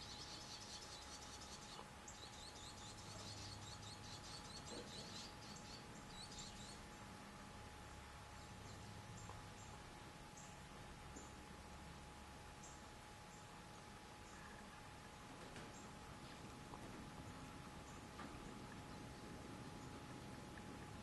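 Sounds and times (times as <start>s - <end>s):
swallows chirping: 0.0s - 7.0s.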